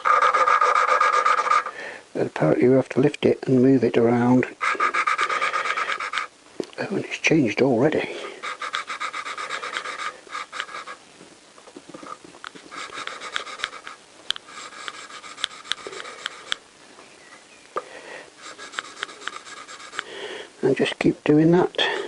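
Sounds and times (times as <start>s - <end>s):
valve lapping gritty rasping: 0.0s - 1.8s, 4.6s - 6.3s, 8.1s - 11.0s, 11.9s - 16.6s, 18.4s - 20.1s.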